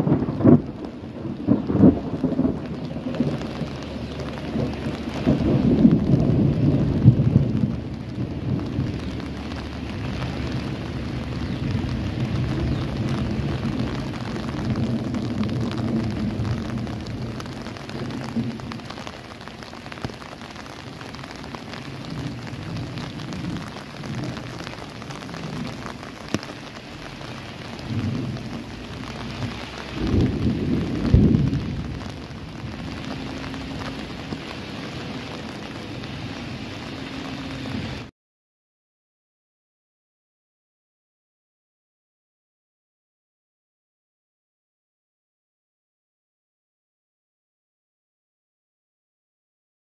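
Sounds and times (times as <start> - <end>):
steady rain: 0.0 - 38.1
thunder rumbling: 0.0 - 38.1.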